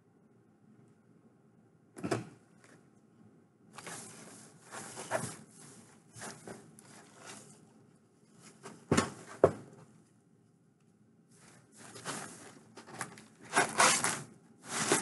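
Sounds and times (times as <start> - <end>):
packaging rustling: 11.8 - 15.0.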